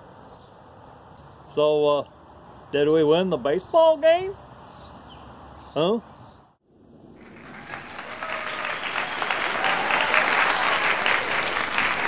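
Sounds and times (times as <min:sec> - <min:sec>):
audience applause: 0:07.2 - 0:12.0.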